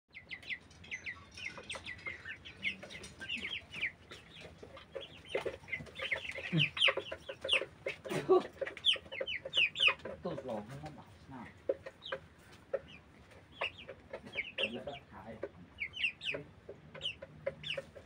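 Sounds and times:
chickens clucking: 0.1s - 18.0s
chicks peeping: 0.1s - 18.0s.

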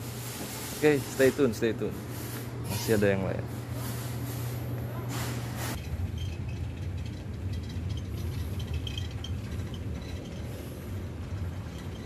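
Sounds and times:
steady low interior hum: 0.0s - 12.0s
faint clicks and clinks: 5.8s - 12.0s.

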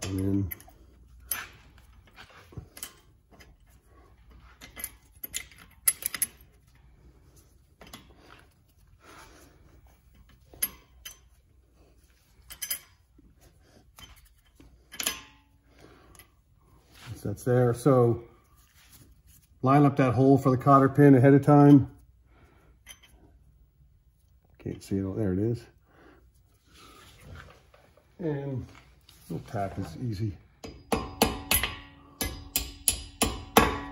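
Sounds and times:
metal brake hardware clinking: 0.0s - 2.1s, 4.5s - 6.8s, 10.1s - 11.4s, 12.4s - 13.1s, 13.9s - 15.4s, 22.8s - 23.2s.

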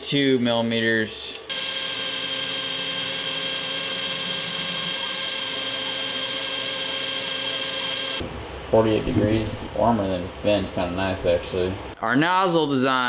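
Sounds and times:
metal lathe whining: 1.5s - 8.2s.

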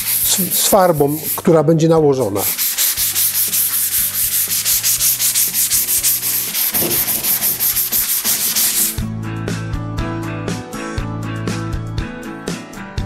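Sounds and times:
abrasive block scuffing sheet metal: 0.0s - 1.5s, 2.2s - 9.0s.

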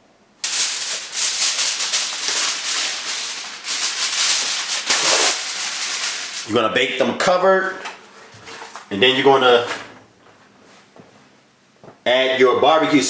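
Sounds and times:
aluminium foil crinkling: 0.4s - 6.6s.

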